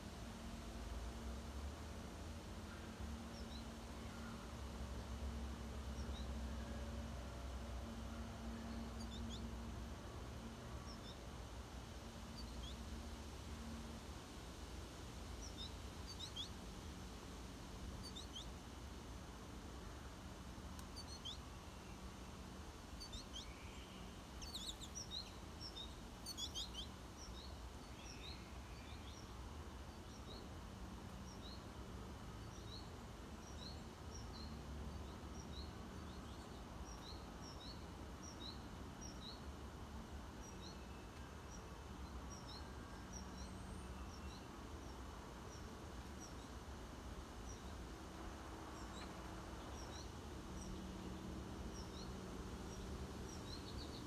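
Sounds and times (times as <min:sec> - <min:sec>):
faint low outdoor rumble: 0:00.0 - 0:54.0
small birds chirping: 0:15.4 - 0:16.6, 0:18.0 - 0:18.6, 0:20.7 - 0:54.0.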